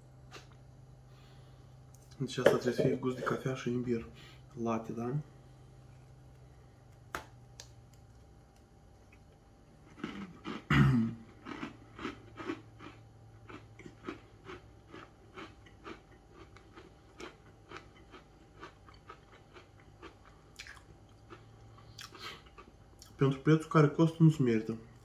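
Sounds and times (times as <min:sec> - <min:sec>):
chewing: 0:09.0 - 0:23.2
person biting biscuit: 0:09.8 - 0:10.7.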